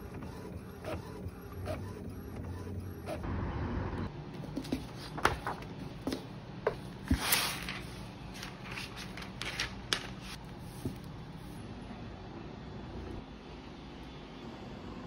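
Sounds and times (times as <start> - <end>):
paper crinkling: 7.1 - 11.0.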